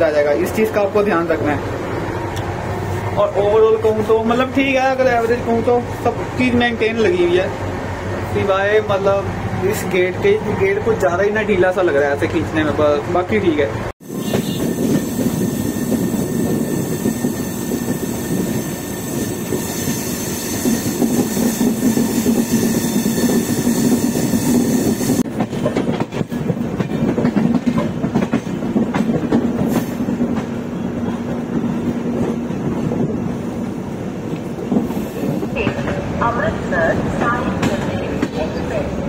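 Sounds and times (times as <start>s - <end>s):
train wheels on rails: 14.0s - 39.0s.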